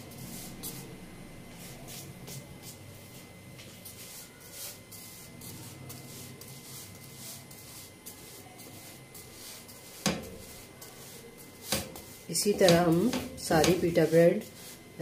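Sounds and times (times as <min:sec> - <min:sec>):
low steady hum: 0:00.0 - 0:15.0
spatula pushing bread in a pan: 0:05.8 - 0:15.0.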